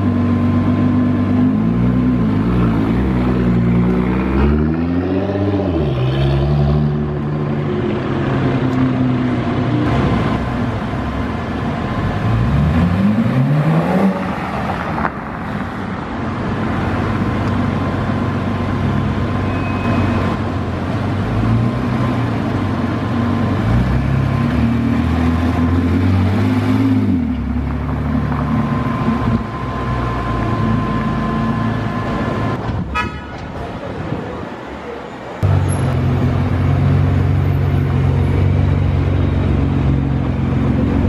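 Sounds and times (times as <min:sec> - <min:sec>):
sports car engines revving: 0:00.0 - 0:19.4, 0:20.2 - 0:32.4.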